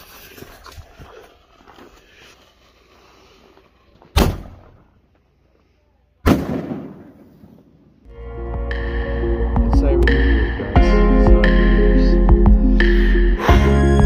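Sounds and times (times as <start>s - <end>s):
firework launch bang: 4.1s - 4.8s, 6.3s - 7.7s
firework bursting overhead: 6.3s - 7.9s.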